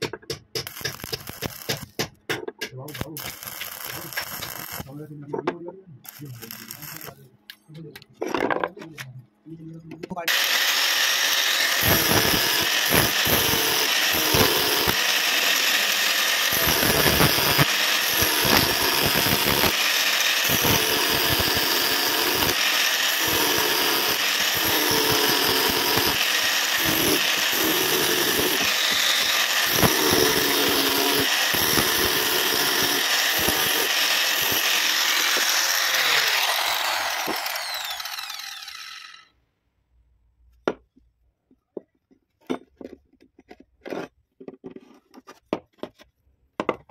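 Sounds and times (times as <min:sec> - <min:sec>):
angle grinder grinding steel: 0:00.0 - 0:02.0, 0:02.9 - 0:07.2, 0:10.3 - 0:39.3.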